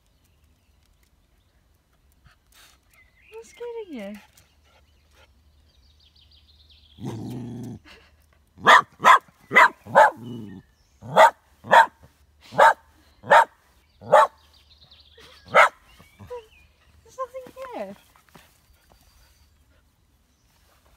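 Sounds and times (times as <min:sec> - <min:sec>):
small dog growling: 0:07.0 - 0:08.0, 0:09.9 - 0:11.3
small dog barking sharply: 0:08.6 - 0:10.3, 0:11.0 - 0:14.4, 0:15.5 - 0:15.8.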